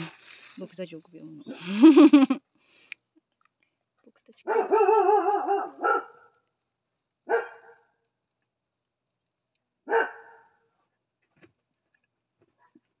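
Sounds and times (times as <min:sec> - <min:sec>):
dog barking: 0:04.4 - 0:06.4, 0:07.2 - 0:08.0, 0:09.8 - 0:10.6.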